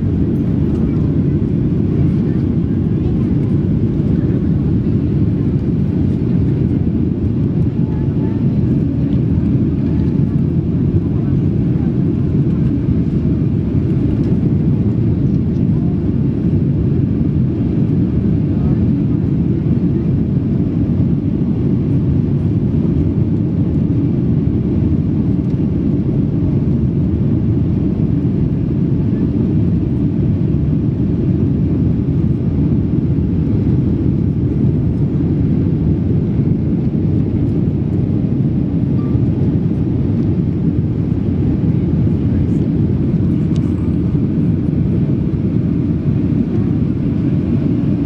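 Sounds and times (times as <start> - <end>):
airliner cabin engine rumble: 0.0 - 48.0.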